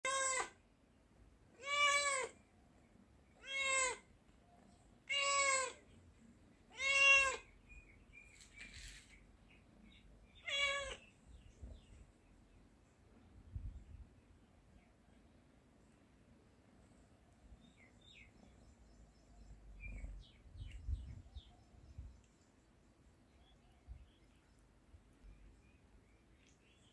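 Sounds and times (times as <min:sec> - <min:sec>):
cat meowing: 0:00.0 - 0:00.6, 0:01.6 - 0:02.4, 0:03.4 - 0:04.1, 0:05.0 - 0:05.8, 0:06.7 - 0:07.5, 0:10.4 - 0:11.1.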